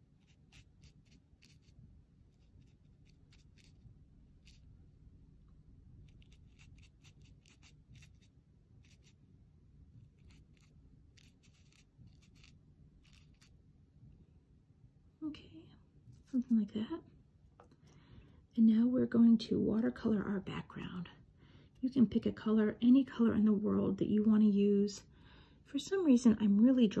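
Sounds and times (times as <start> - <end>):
brush strokes on paper: 0.0 - 4.7, 6.0 - 9.2, 10.0 - 13.6
low steady hum: 0.0 - 27.0.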